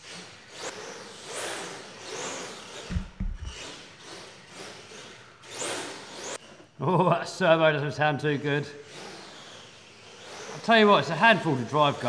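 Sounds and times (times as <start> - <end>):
rc truck motor hissing surge: 0.0 - 7.0, 8.3 - 12.0
low thumps: 2.9 - 3.6.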